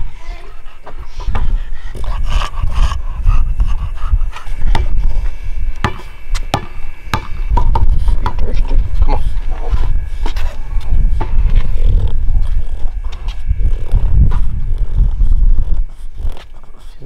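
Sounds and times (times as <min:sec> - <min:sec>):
low rumble: 0:00.0 - 0:16.9
basketball bouncing on concrete: 0:04.6 - 0:09.0.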